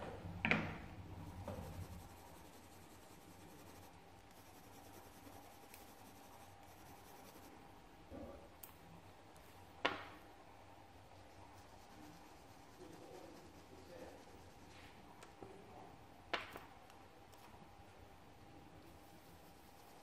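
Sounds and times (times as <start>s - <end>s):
coloured pencil scratching on paper: 1.2s - 7.6s, 11.2s - 15.0s, 18.9s - 20.0s.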